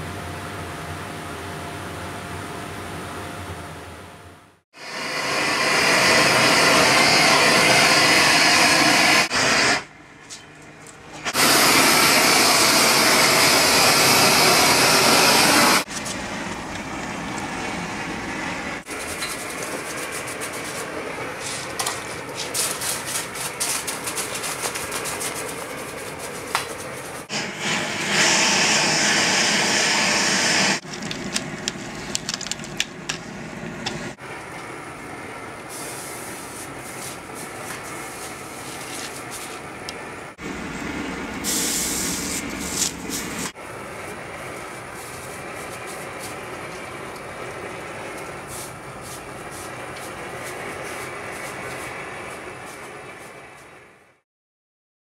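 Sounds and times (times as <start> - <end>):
gas torch hissing: 4.8 - 9.9, 11.3 - 15.9, 27.2 - 34.2, 35.7 - 38.6, 41.4 - 43.6
crackling and clicking: 30.8 - 33.2.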